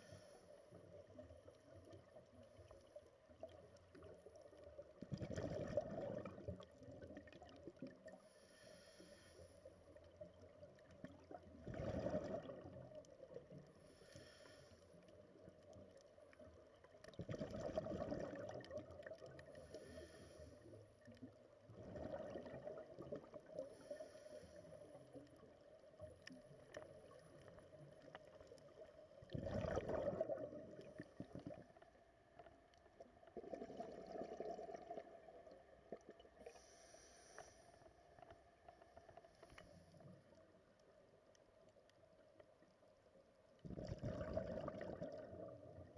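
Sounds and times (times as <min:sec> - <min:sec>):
regulator inhale hiss: 0:00.0 - 0:00.8, 0:08.2 - 0:09.9, 0:13.8 - 0:15.1, 0:19.5 - 0:20.8, 0:23.6 - 0:25.0, 0:36.4 - 0:38.0
exhaled bubbles rushing: 0:05.0 - 0:08.0, 0:11.2 - 0:13.0, 0:17.1 - 0:19.4, 0:21.7 - 0:23.6, 0:29.2 - 0:31.7, 0:33.3 - 0:36.3, 0:43.6 - 0:45.9.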